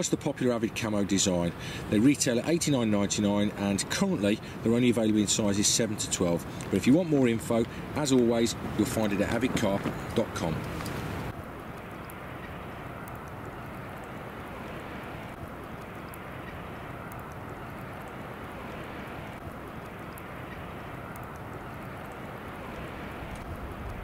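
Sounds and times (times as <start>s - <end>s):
faint high ticks: 4.8s - 24.0s.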